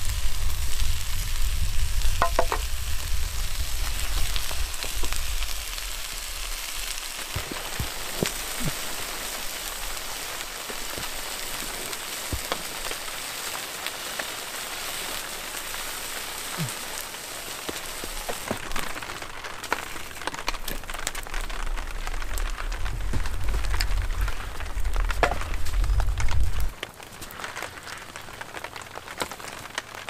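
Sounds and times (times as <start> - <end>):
steady rain falling: 0.0 - 30.0
sharp clicks and knocks: 2.2 - 2.7.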